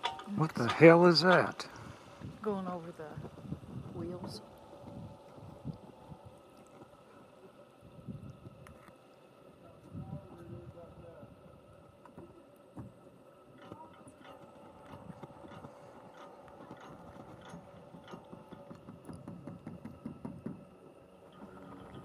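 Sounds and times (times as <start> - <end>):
lift cable clattering over wheels: 0.0 - 5.6, 13.5 - 22.0
faint steady hum: 0.0 - 22.0.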